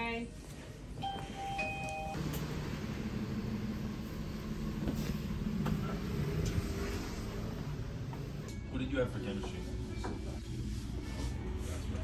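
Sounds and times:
street traffic rumble: 2.2s - 8.7s.

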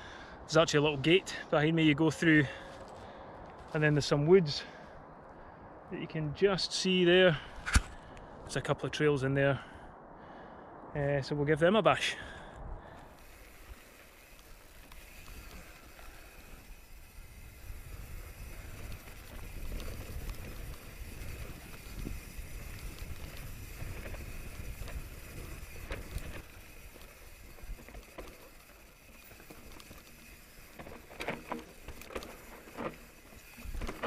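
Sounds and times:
bike clicks and rattles: 2.4s - 4.2s, 12.9s - 34.0s
bike tyre noise: 12.2s - 34.0s
wind rumble on microphone: 16.4s - 28.2s.

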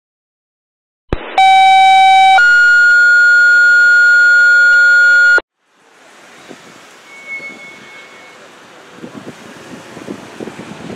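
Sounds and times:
two-tone paging alert: 1.4s - 5.4s.

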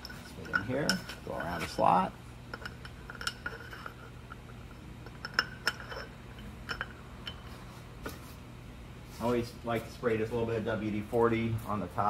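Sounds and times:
metal bolts clinking and scraping: 0.0s - 8.2s
steady low hum: 0.0s - 12.0s.

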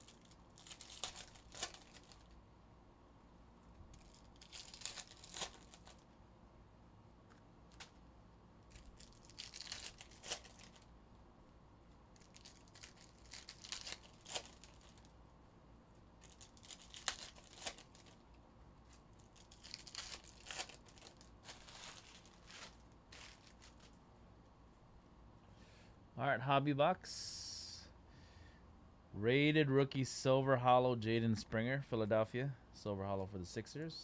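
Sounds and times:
foil wrappers tearing and crinkling: 0.0s - 2.4s, 3.9s - 6.0s, 8.7s - 10.9s, 12.1s - 15.1s, 16.2s - 18.2s, 18.8s - 24.0s.

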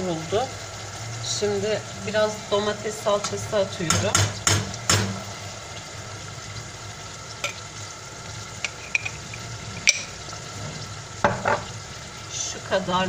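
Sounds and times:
meat sizzling in a pot: 0.0s - 13.0s.

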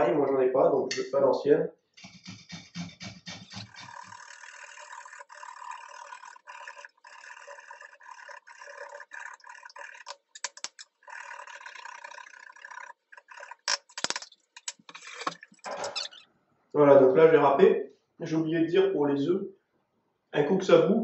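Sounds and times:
sharp clicks and knocks: 2.0s - 4.0s.

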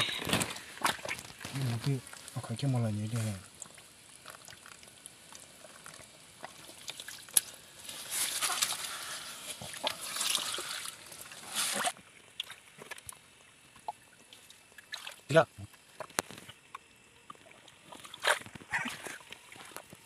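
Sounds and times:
water sloshing and splashing: 0.0s - 20.0s.

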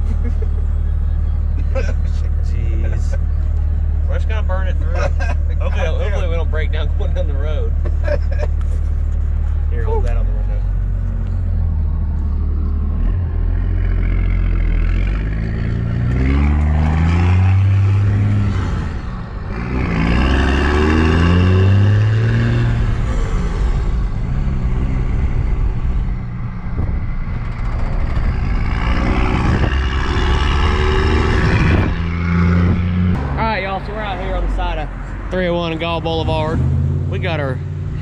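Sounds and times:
diesel engine accelerating hard: 0.0s - 38.0s.

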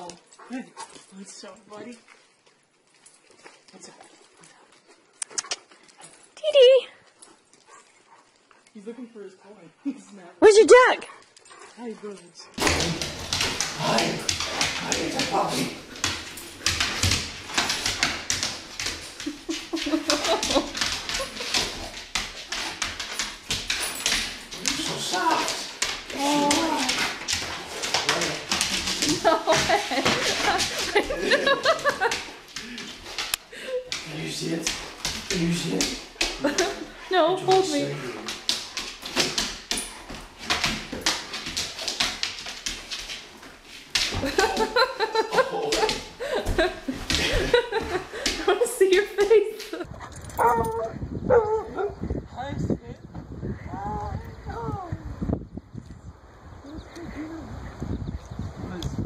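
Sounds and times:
dog claws clicking on wooden floor: 12.6s - 50.5s.

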